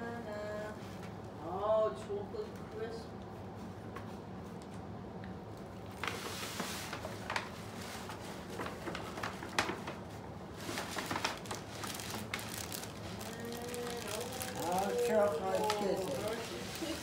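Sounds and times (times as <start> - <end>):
sharp paper crackles: 5.9 - 17.0
tissue paper rustling: 6.0 - 17.0.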